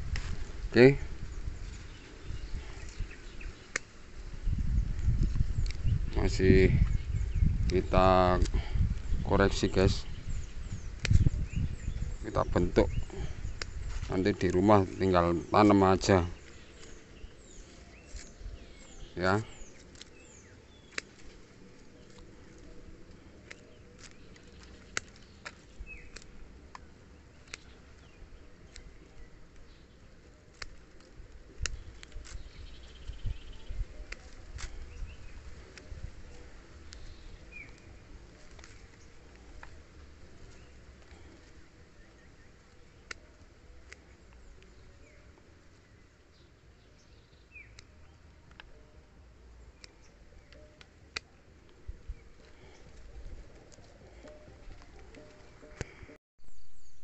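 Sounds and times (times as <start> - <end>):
faint bird chirps: 0.7 - 57.0
pruning shears snipping twigs: 2.8 - 4.1, 10.9 - 11.3, 18.0 - 33.2, 34.0 - 41.7, 42.6 - 44.7, 49.7 - 56.0.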